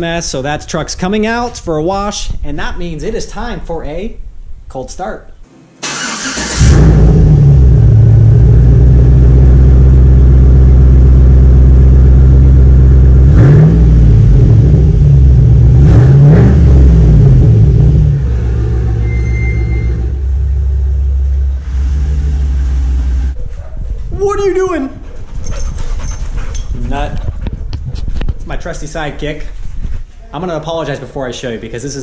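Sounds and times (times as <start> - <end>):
pickup engine running and revving: 6.6 - 19.0.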